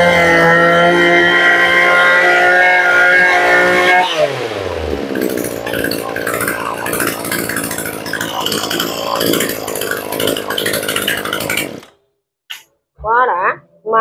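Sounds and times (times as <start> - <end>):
brush cutter engine idling: 4.3 - 11.9.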